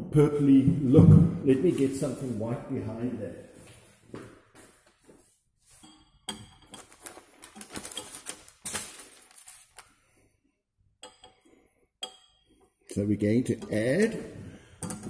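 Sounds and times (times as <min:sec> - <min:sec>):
paper rustling: 0:06.7 - 0:09.9.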